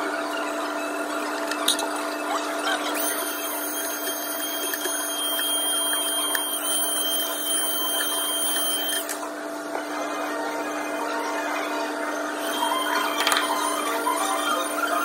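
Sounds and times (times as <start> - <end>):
electric blower whining: 12.4 - 15.0.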